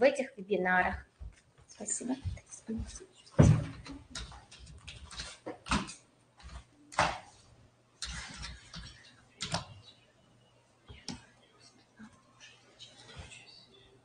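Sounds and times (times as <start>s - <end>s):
knocks and rustles handling things: 2.3s - 7.4s.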